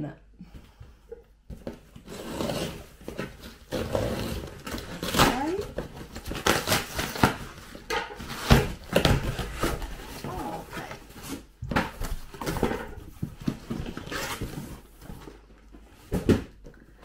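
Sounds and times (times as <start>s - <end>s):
cardboard and tape ripping: 1.6s - 15.2s.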